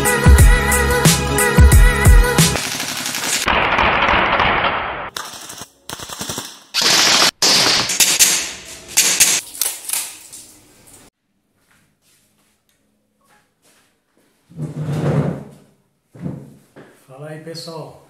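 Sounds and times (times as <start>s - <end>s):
airsoft guns firing: 2.6s - 9.4s.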